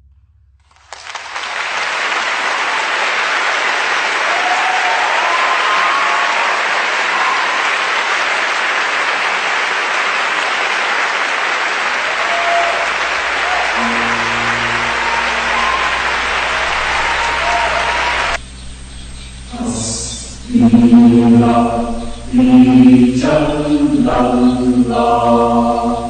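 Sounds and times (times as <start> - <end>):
audience applause: 0.7 - 18.4.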